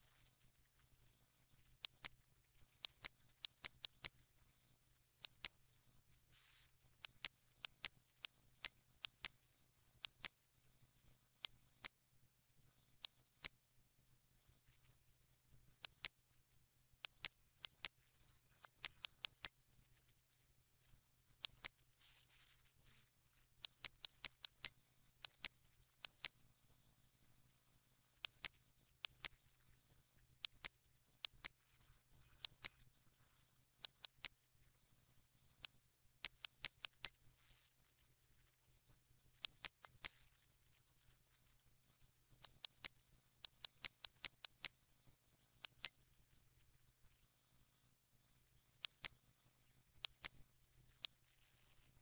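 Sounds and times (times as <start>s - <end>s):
computer mouse clicking: 0.0s - 10.4s, 14.7s - 16.2s, 17.0s - 20.1s, 21.4s - 26.4s, 28.1s - 32.8s, 33.8s - 34.5s, 35.5s - 38.6s, 39.2s - 44.8s, 45.5s - 47.2s, 48.8s - 52.0s.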